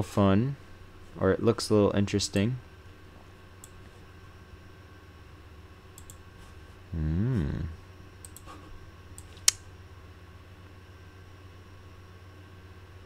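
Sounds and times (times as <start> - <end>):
computer mouse clicks: 6.0 - 6.2, 8.2 - 8.5
man humming hmm: 6.8 - 8.8.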